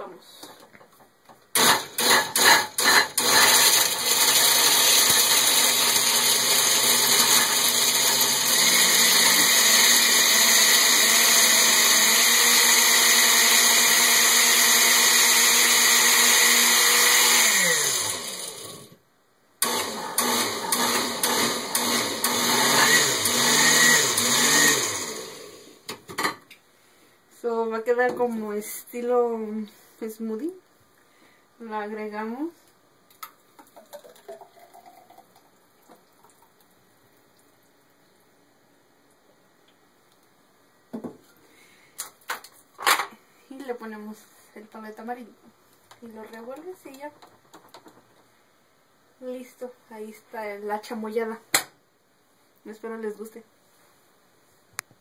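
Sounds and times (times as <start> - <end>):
blender crushing ice: 1.6 - 19.0, 19.6 - 25.8.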